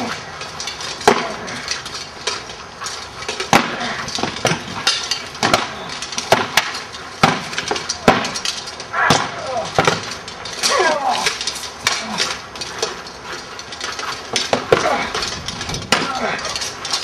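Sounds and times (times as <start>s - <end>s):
swords clashing metallic clangs: 0.0s - 17.0s.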